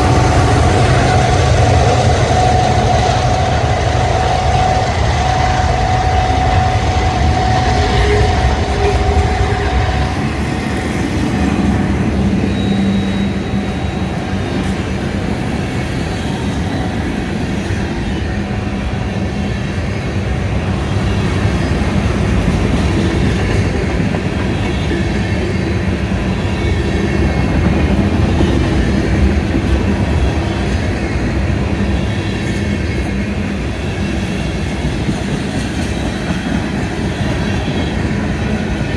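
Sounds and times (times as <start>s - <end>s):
wheels squealing: 0.0s - 17.2s
train wheels rumbling on rails: 0.0s - 38.9s.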